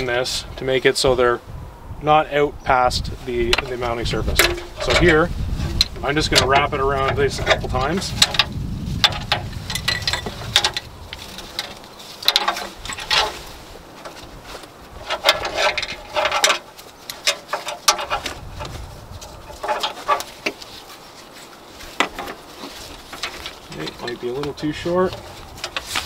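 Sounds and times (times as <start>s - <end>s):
metal buckles clinking: 4.3s - 5.2s, 5.8s - 14.3s, 15.0s - 26.0s.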